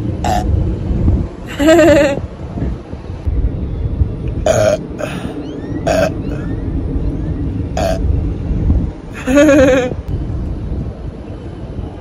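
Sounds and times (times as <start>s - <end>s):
woman burping: 4.5s - 5.2s, 9.2s - 9.9s.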